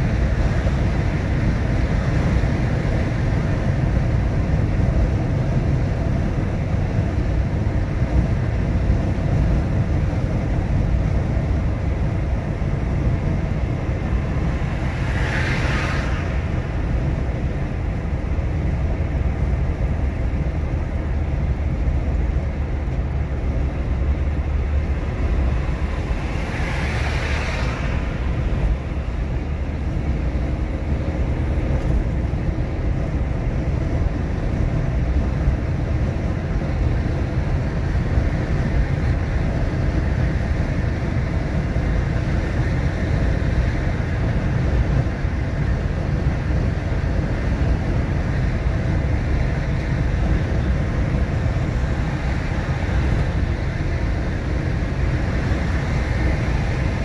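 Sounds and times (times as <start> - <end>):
car engine and road rumble: 0.0 - 57.0.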